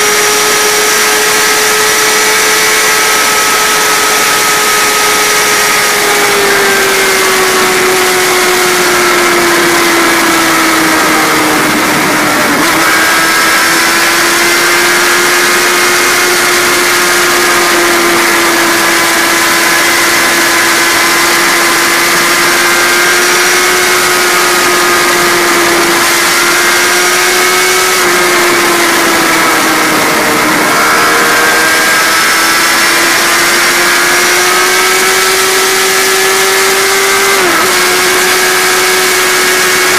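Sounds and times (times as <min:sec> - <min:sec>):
vehicle engine at high revs: 0:00.0 - 0:39.9.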